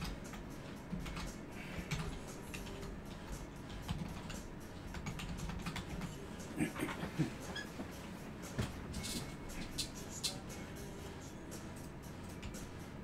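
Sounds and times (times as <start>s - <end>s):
computer keyboard typing: 0.0s - 1.3s, 1.9s - 6.2s.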